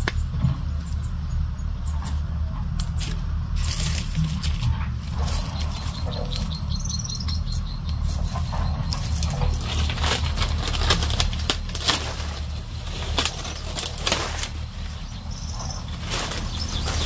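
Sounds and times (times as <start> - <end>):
steady low rumble: 0.0 - 17.0
footsteps on dry leaves: 2.1 - 17.0
bird chirps: 5.2 - 9.9, 14.6 - 17.0.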